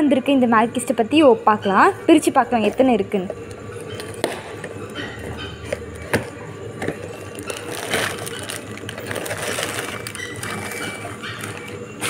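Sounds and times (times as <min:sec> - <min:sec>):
plastic packets rustling and crinkling: 0:05.7 - 0:12.0.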